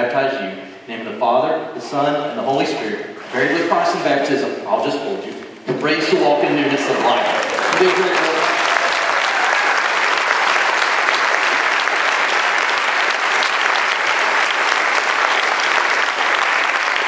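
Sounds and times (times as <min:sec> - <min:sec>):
congregation applauding: 0:06.5 - 0:17.0.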